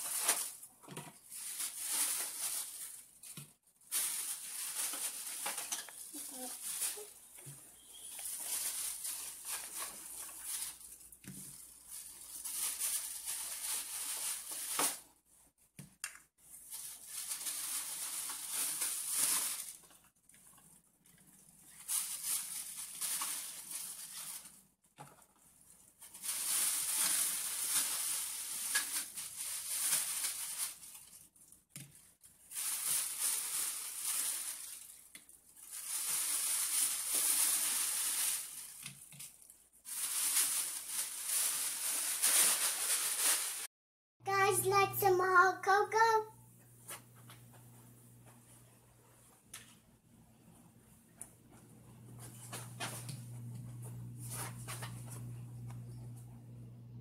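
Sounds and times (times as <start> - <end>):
plastic toys rustling in bag: 0.0 - 15.1, 16.4 - 20.7, 21.4 - 43.7.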